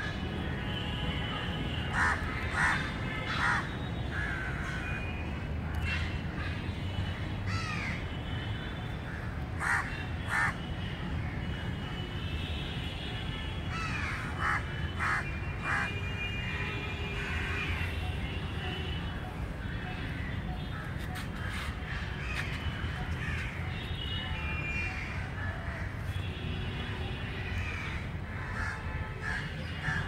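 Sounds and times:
crows cawing: 1.9s - 4.9s, 7.5s - 8.0s, 9.1s - 10.6s, 13.7s - 15.9s, 27.6s - 30.0s.

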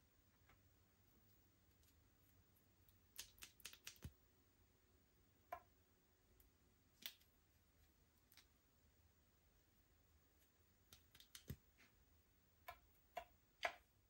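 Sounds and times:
sticky slime clicks: 3.1s - 4.1s.

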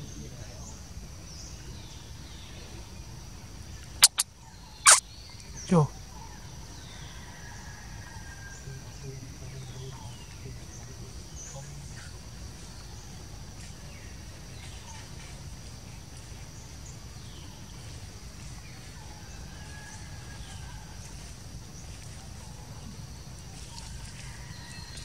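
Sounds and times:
insect drone: 0.0s - 25.0s
bird chirps: 3.8s - 6.4s.

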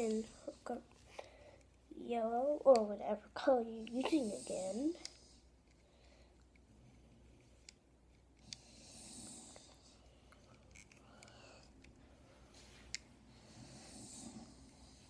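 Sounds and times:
child breathing softly: 0.1s - 1.8s, 11.0s - 12.7s.

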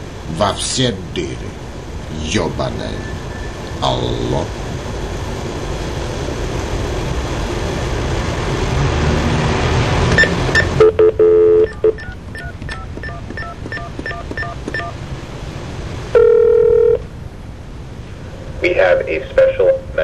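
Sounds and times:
dial tone: 10.2s - 15.0s, 16.2s - 17.0s
steady telephone tone: 10.2s - 15.0s, 16.1s - 17.0s
telephone line hiss: 10.2s - 15.0s, 16.1s - 17.0s
touch-tone dialing beeps: 10.2s - 15.0s, 16.2s - 17.0s.

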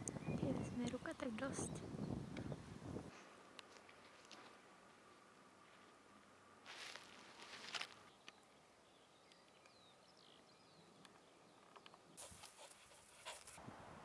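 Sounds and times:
foot rustling in grass: 6.6s - 8.0s.

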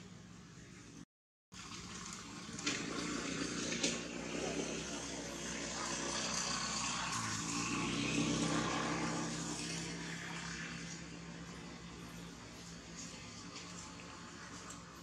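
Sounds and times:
low motor drone: 2.6s - 15.0s.

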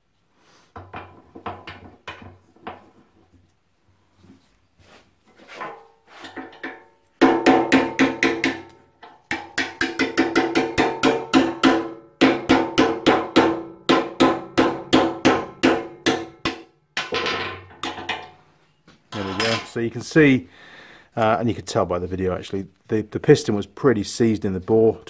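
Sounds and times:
hammer striking metal punch: 6.5s - 18.2s.

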